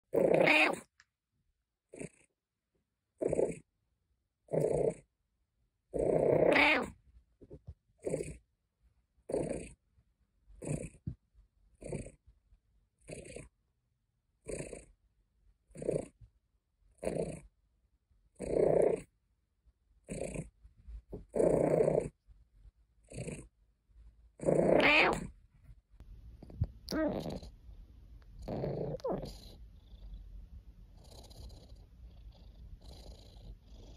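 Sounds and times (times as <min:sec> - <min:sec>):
cat grumbling calls: 0:00.1 - 0:00.9, 0:05.9 - 0:07.0, 0:24.4 - 0:25.3, 0:26.9 - 0:27.5, 0:28.4 - 0:29.6.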